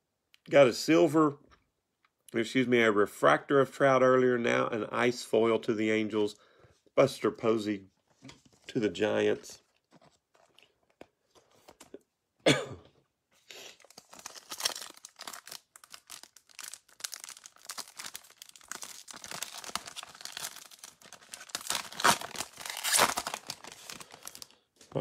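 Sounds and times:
person coughing: 12.4s - 13.0s
foil wrapper crinkling and tearing: 13.7s - 24.6s.

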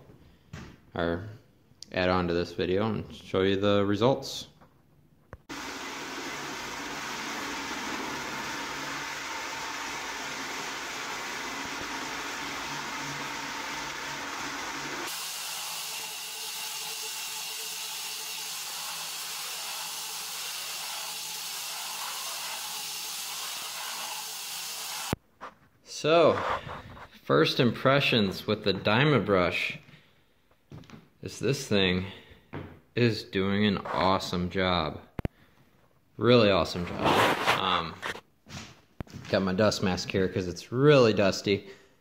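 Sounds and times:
floor buffer grinding glue: 5.5s - 25.2s.

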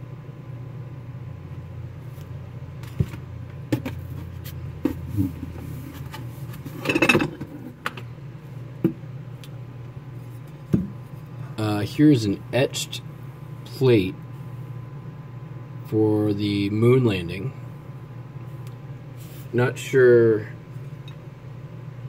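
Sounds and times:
steady low hum: 0.0s - 22.0s
dishes clattering: 6.8s - 7.5s.

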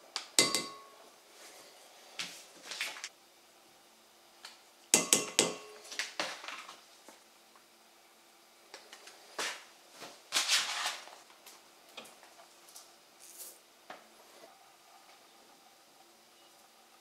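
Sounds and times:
spoon clicking on metal bowl: 0.4s - 0.9s.

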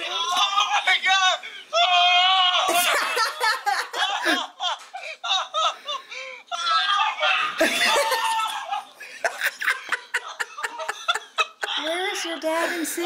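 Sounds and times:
people laughing: 2.6s - 6.3s, 7.4s - 13.0s.

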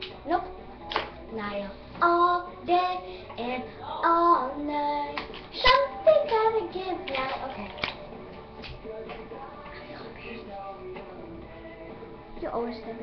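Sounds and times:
girl singing: 0.2s - 0.6s, 1.2s - 7.8s, 9.5s - 10.6s.

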